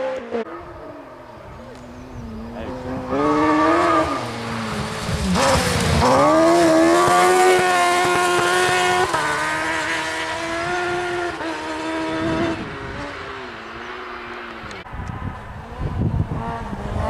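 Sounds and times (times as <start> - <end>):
buggy engine revving high: 0.0 - 17.0.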